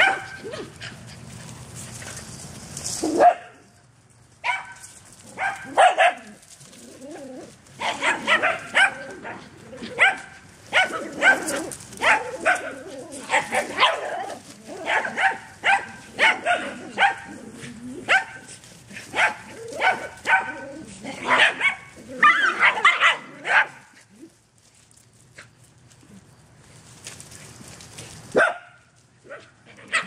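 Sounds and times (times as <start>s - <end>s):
small dogs yapping: 0.0s - 1.3s, 2.9s - 3.6s, 4.4s - 24.4s, 28.3s - 30.0s.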